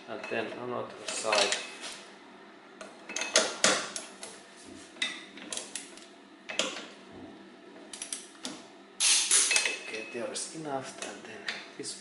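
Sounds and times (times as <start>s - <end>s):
torque wrench clicking: 9.0s - 9.7s.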